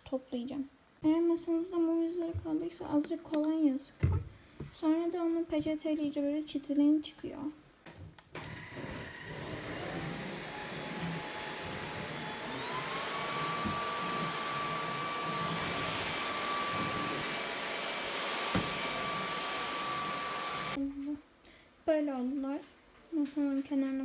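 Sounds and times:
vacuum cleaner motor whine: 0:08.3 - 0:20.8.

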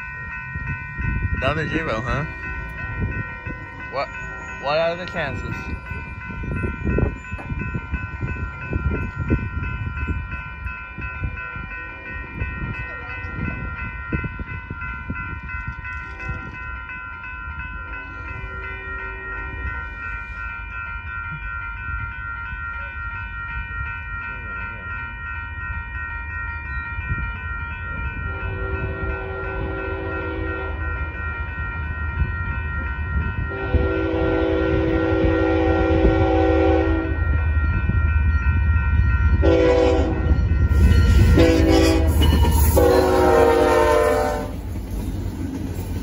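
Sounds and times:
crossing warning bell ringing: 0:00.0 - 0:46.0
low gusty rumble: 0:00.0 - 0:46.0
train horn: 0:28.3 - 0:30.9, 0:33.5 - 0:37.2, 0:39.4 - 0:44.6.

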